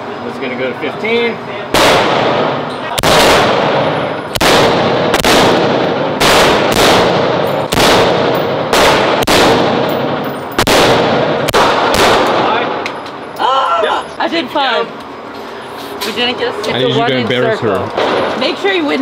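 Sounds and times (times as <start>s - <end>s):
rifle shots echoing indoors: 1.7s - 12.8s.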